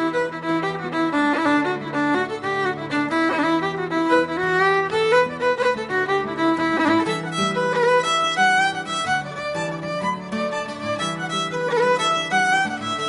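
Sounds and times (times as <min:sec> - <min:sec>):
violin music: 0:00.0 - 0:13.0.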